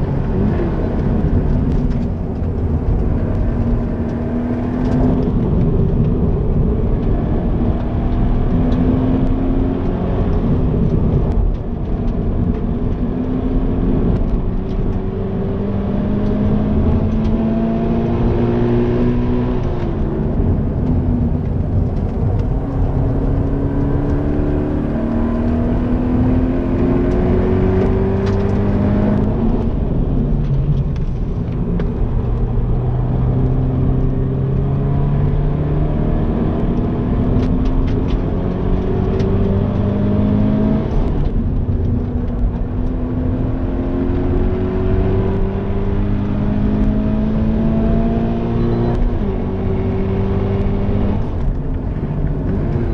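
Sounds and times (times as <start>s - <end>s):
car engine revving: 0.0s - 52.9s.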